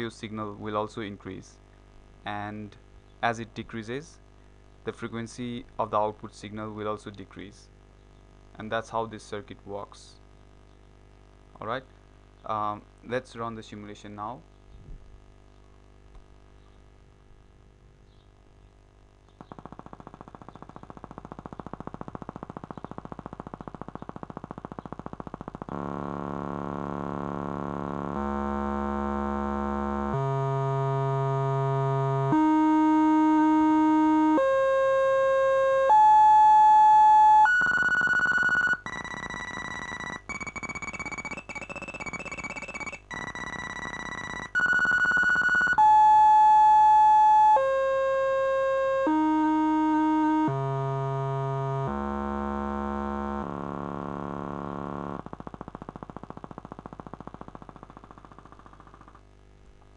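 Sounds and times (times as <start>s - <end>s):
buzzy square-wave tone: 18.9s - 59.1s.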